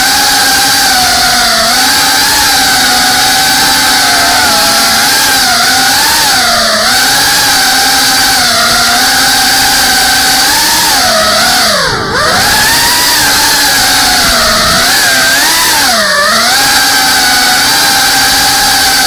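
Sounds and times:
drone motors whining: 0.0s - 19.0s.

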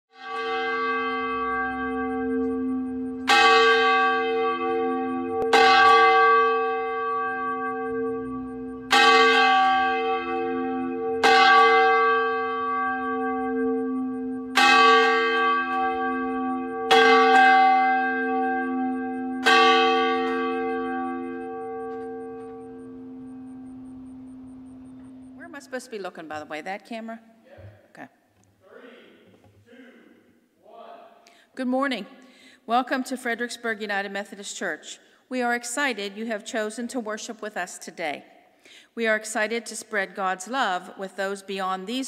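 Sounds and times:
church bell tolling: 0.1s - 25.7s.

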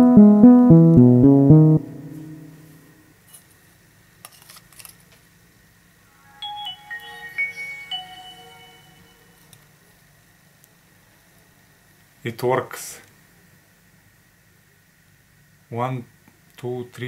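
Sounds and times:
phone start-up tune: 0.0s - 2.6s, 6.2s - 9.5s
electronic beep tones: 6.2s - 9.5s.

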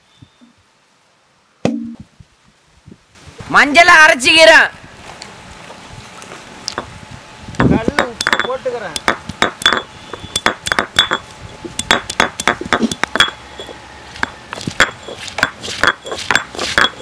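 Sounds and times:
stone clinking on stone: 7.6s - 17.0s.

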